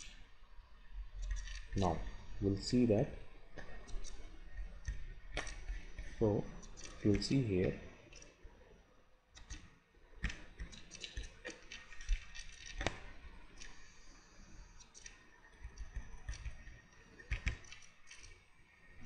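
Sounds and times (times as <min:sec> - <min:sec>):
computer mouse clicking: 0:03.6 - 0:08.4, 0:09.4 - 0:18.4.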